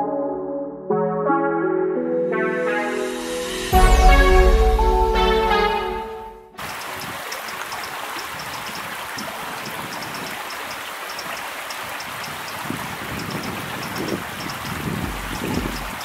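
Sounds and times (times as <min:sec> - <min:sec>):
high-pitched ticks or chirps: 0:06.6 - 0:16.0
stream water rushing: 0:06.6 - 0:16.0.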